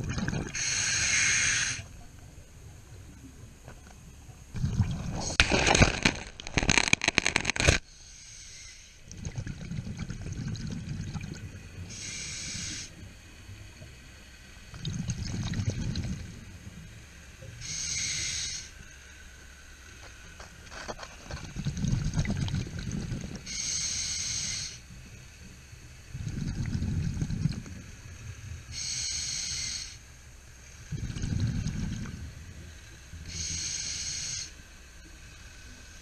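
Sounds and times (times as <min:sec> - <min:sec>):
bubbling rush on exhale: 0:00.0 - 0:01.9, 0:04.5 - 0:07.6, 0:09.1 - 0:12.9, 0:14.7 - 0:16.5, 0:21.2 - 0:24.8, 0:26.1 - 0:27.8, 0:30.9 - 0:34.5
regulator hiss on inhale: 0:00.4 - 0:02.0, 0:07.8 - 0:09.1, 0:11.8 - 0:13.1, 0:17.4 - 0:20.5, 0:23.0 - 0:36.0.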